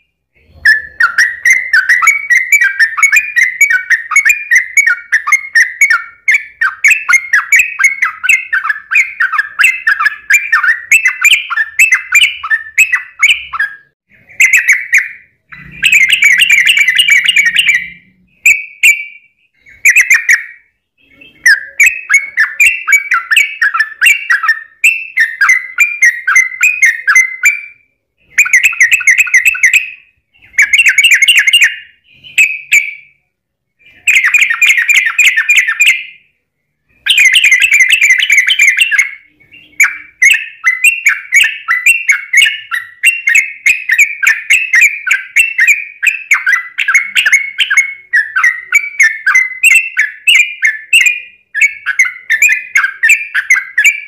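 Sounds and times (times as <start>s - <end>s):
bulbul singing rolling song: 0.0s - 54.0s.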